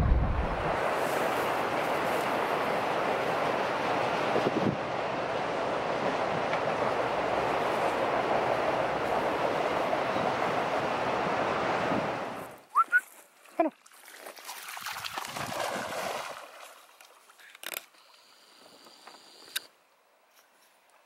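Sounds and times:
water splashing: 12.8 - 17.4.

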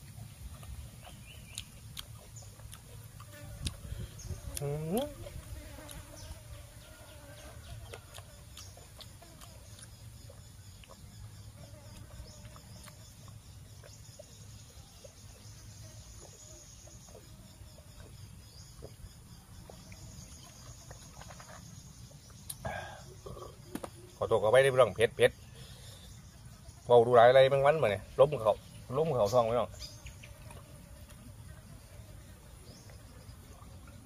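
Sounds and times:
high insect buzz: 1.1 - 34.0
distant chickens clucking: 5.2 - 9.5.

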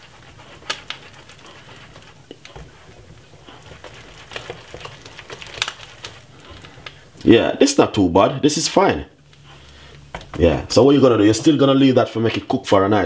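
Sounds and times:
whisk stirring porridge: 0.0 - 6.9.

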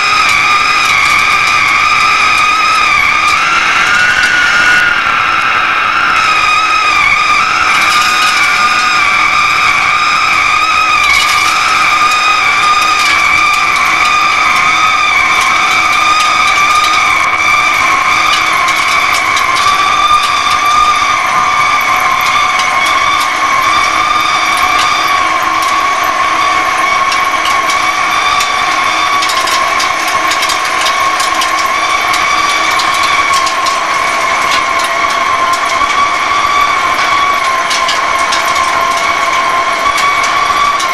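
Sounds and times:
lathe high-pitched squeal: 0.0 - 40.9
scattered crackles: 0.0 - 40.9.

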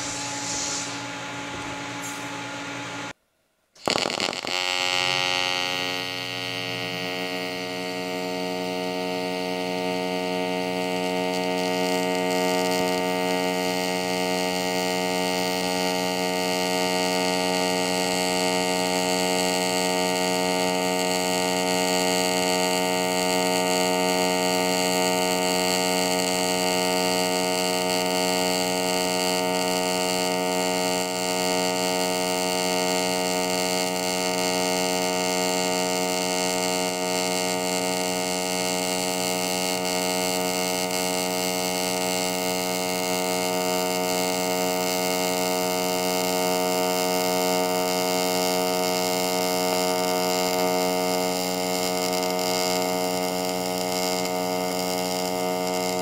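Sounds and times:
faint hiss: 0.0 - 1.3
electrical mains hum: 0.0 - 3.2.

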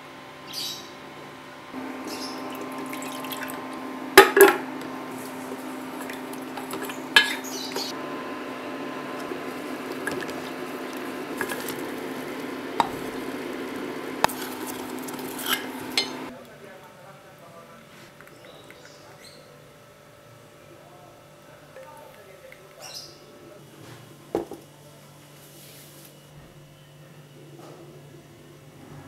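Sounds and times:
steady low hum: 0.0 - 16.4
spoon stirring in a saucepan: 2.0 - 7.9, 8.9 - 16.3.

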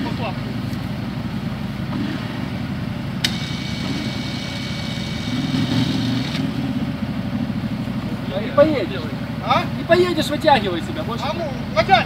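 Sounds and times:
utility vehicle engine running: 0.0 - 12.0
electric winch whining: 3.2 - 6.5.

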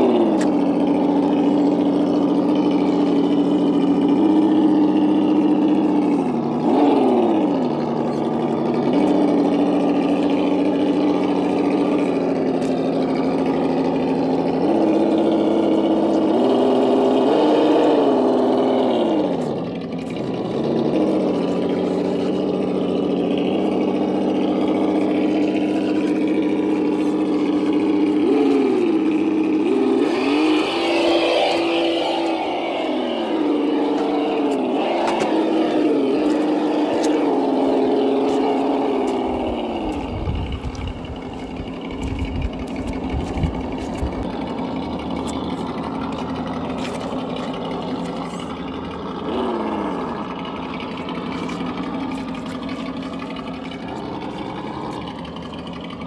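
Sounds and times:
simulated engine idling and revving: 0.0 - 56.0.

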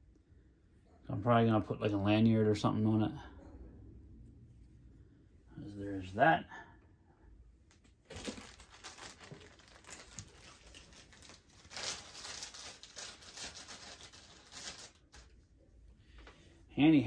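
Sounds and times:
plastic bag crinkling: 7.8 - 15.5.

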